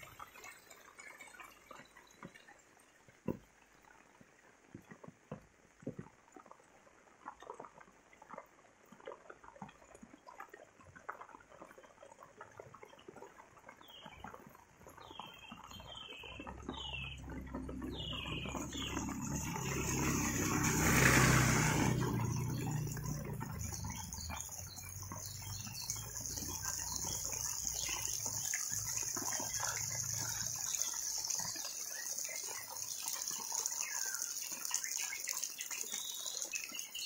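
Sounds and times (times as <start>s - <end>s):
rain pattering on wet lane: 13.6s - 37.0s
bird chirping: 13.8s - 37.0s
motorbike passing: 17.2s - 25.2s.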